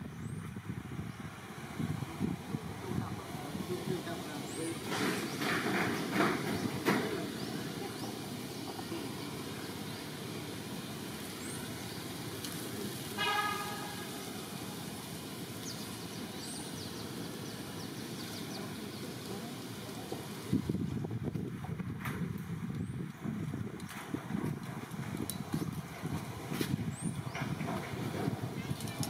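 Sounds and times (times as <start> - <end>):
distant traffic rumble: 0.0 - 29.0
short horn toot: 13.2 - 14.2.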